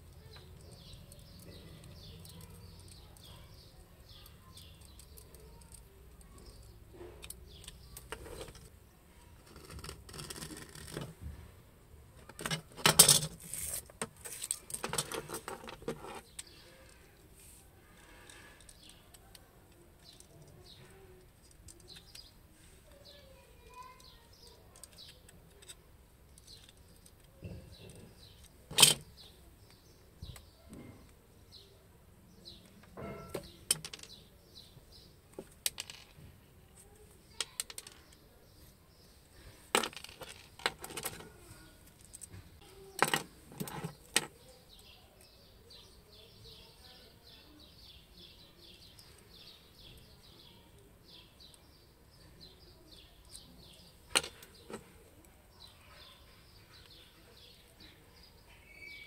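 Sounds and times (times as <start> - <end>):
birds chirping faintly: 0.0 - 59.0
tools clicking and knocking on table: 12.2 - 16.6, 32.8 - 34.2, 39.7 - 41.3, 43.0 - 44.4, 53.3 - 55.0.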